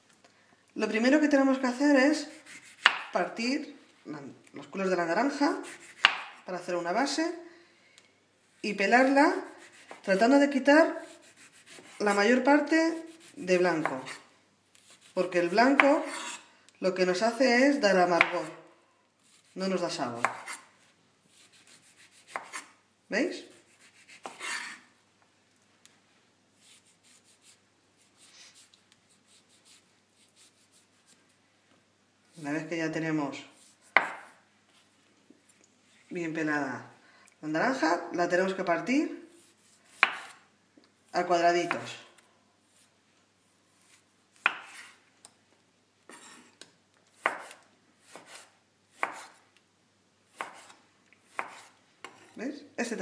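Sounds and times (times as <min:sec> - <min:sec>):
knife slicing orange peel: 0:02.2 - 0:03.2, 0:05.4 - 0:06.5, 0:09.3 - 0:10.1, 0:10.8 - 0:12.2, 0:12.9 - 0:14.2, 0:14.8 - 0:16.5, 0:20.2 - 0:22.8, 0:23.4 - 0:24.9, 0:33.6 - 0:34.4, 0:39.4 - 0:40.5, 0:43.8 - 0:45.0, 0:47.1 - 0:49.4, 0:50.3 - 0:52.4
knife knocking on wooden board: 0:34.0 - 0:34.3.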